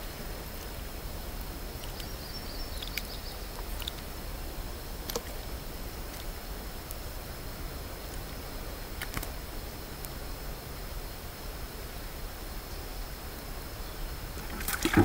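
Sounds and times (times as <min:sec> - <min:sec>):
insects droning: 0:00.0 - 0:15.0
faint sharp clicks: 0:01.4 - 0:04.1, 0:05.0 - 0:05.4, 0:09.0 - 0:09.4.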